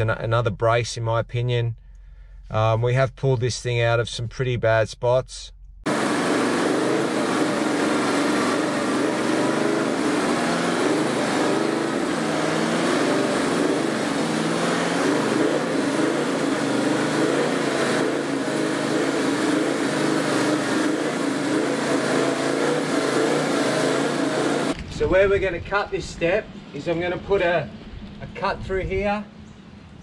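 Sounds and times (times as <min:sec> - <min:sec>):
diesel truck engine at low revs: 0:05.4 - 0:30.0.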